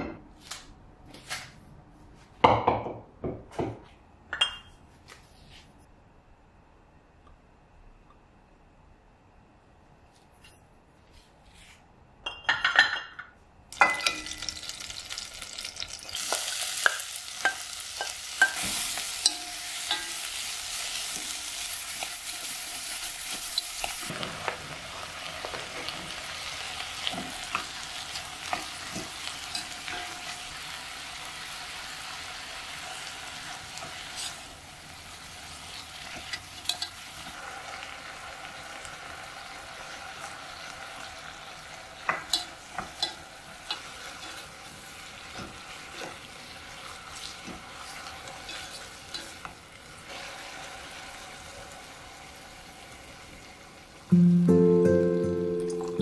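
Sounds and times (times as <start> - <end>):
onion and beef sizzling in oil: 13.8 - 54.4.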